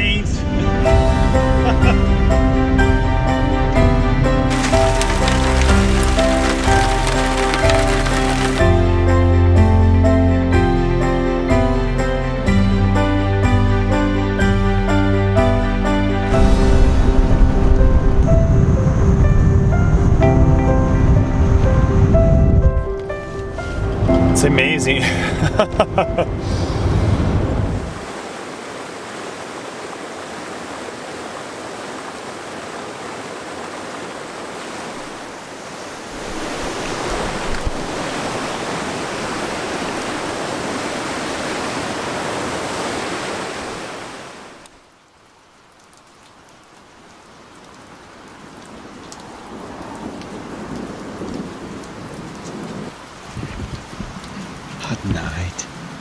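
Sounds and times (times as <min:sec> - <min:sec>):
mountain creek rushing: 0:04.4 - 0:09.1, 0:23.6 - 0:56.0
wind rumbling around car: 0:17.0 - 0:24.2, 0:26.1 - 0:28.2, 0:49.4 - 0:56.0.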